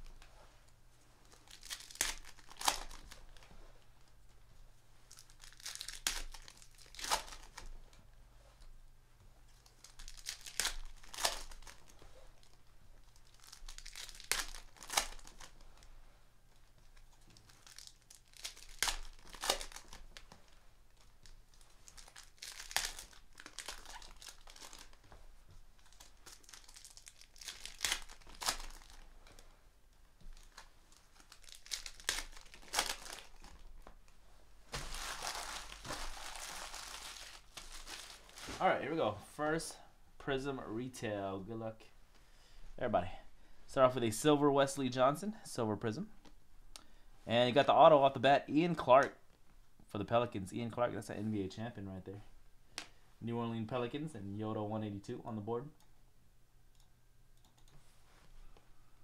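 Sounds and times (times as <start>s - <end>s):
foil wrappers tearing and crinkling: 1.4s - 3.4s, 5.1s - 7.7s, 9.6s - 15.6s, 17.4s - 20.3s, 21.5s - 25.0s, 25.8s - 29.0s, 30.3s - 33.6s, 34.7s - 38.6s.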